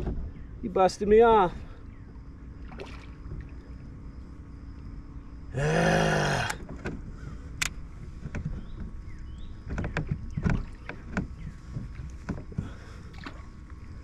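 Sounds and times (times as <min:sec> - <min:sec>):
man groaning: 0:05.6 - 0:06.6.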